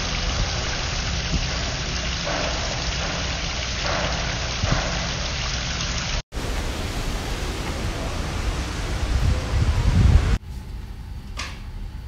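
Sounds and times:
water rushing: 0:00.0 - 0:10.4
steady outdoor hiss: 0:00.0 - 0:12.0
low rumble: 0:06.4 - 0:10.4.

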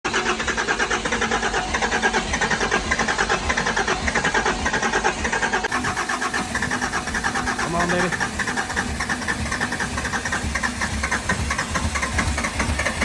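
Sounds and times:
diesel engine cranking: 0:00.0 - 0:13.0.

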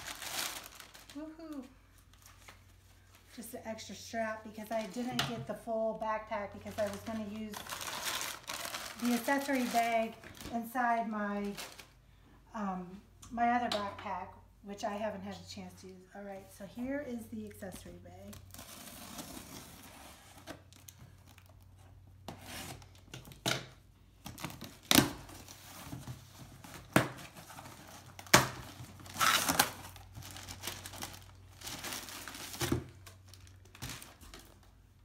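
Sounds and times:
packing tape tearing: 0:00.0 - 0:01.5, 0:06.7 - 0:10.4, 0:26.6 - 0:34.6
plastic wrapping crinkling: 0:00.0 - 0:03.4, 0:06.5 - 0:12.0, 0:24.3 - 0:35.0.

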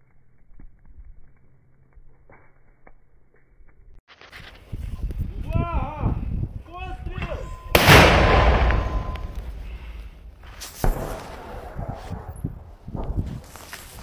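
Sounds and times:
sharp bang: 0:07.6 - 0:12.3
mortar firing blast: 0:07.7 - 0:13.6.

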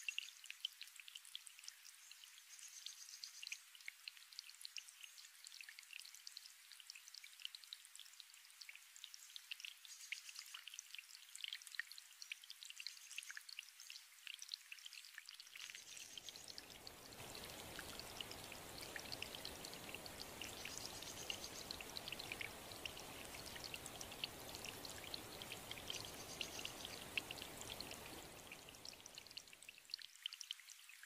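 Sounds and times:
water trickling over rocks: 0:00.0 - 0:31.0
waterfall rushing: 0:16.4 - 0:29.4.

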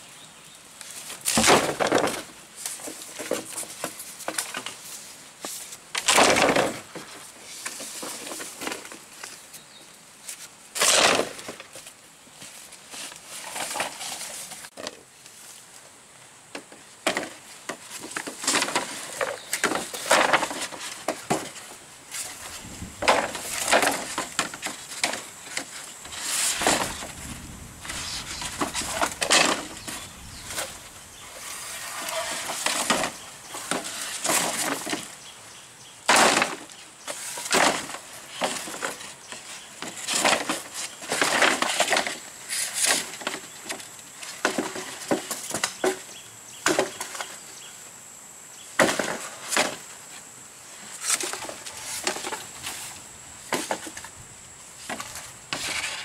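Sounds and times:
knocks and cracks of building work: 0:01.2 - 0:04.8, 0:05.9 - 0:09.0, 0:16.5 - 0:21.8, 0:23.0 - 0:25.8, 0:28.3 - 0:30.7, 0:32.0 - 0:35.1, 0:36.0 - 0:36.8, 0:37.4 - 0:47.4, 0:48.8 - 0:49.8.

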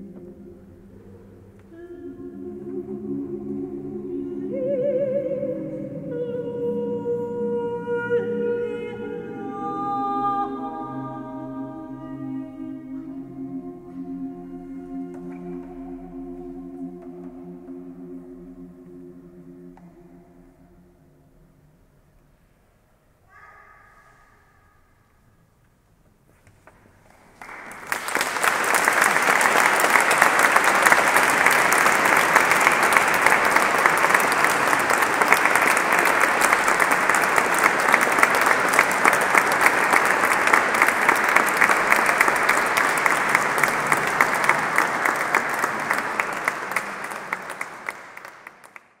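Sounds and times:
audience applauding: 0:27.1 - 0:49.0.

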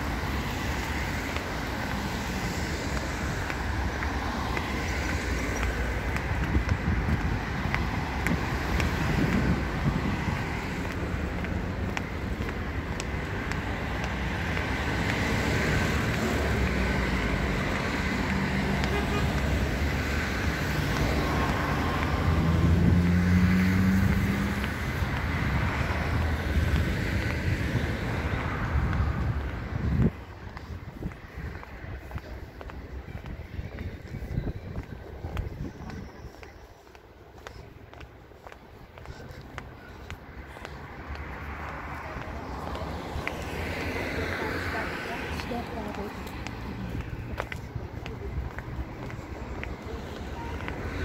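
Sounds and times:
road traffic: 0:00.0 - 0:51.0
vehicle passing close: 0:19.6 - 0:26.0.

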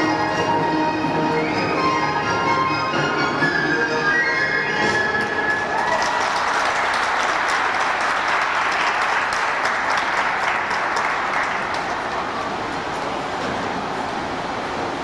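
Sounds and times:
skating music: 0:00.0 - 0:07.8
audience applauding: 0:05.2 - 0:14.5.

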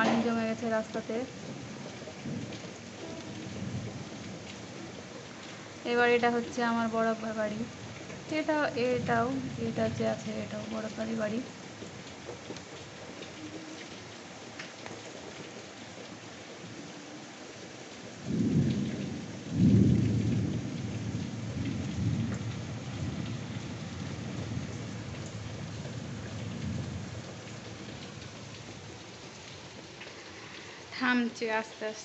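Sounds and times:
thunder rumbling: 0:00.0 - 0:12.1, 0:18.1 - 0:29.4
heavy rain: 0:00.0 - 0:32.0.

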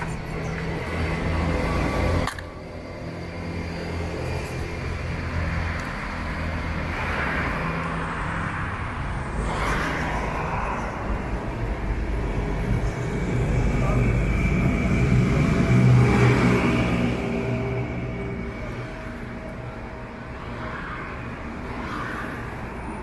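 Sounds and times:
low rumble of vehicles: 0:00.0 - 0:23.0
indistinct voices: 0:09.3 - 0:19.7.

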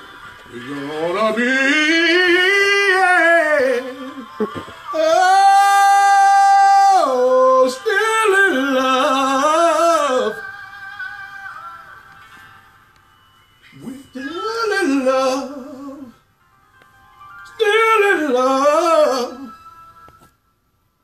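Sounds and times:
man singing high notes: 0:13.7 - 0:16.2.

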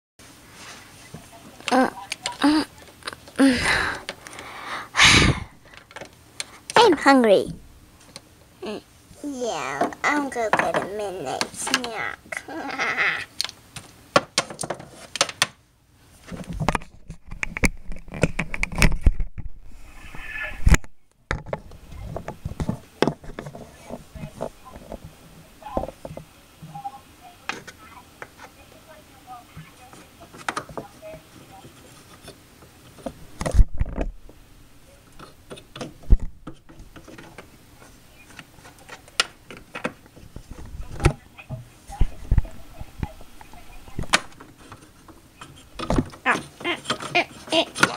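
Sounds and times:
plastic toys clicking: 0:45.4 - 0:47.9.

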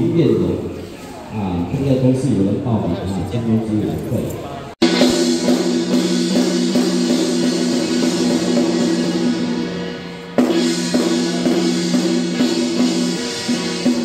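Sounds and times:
music with drum beat: 0:04.8 - 0:14.0.

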